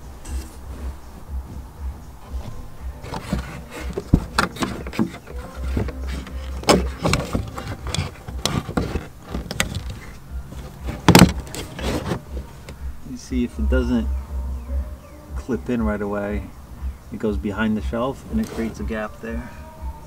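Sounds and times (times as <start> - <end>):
low rumble: 12.2 - 18.4.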